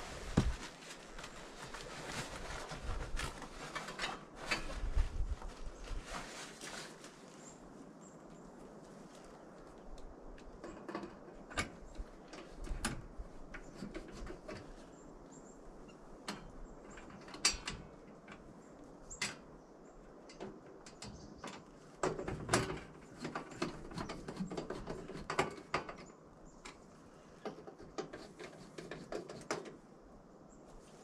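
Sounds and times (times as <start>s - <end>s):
screwdriver clicks and scrapes on metal: 27.4s - 29.8s.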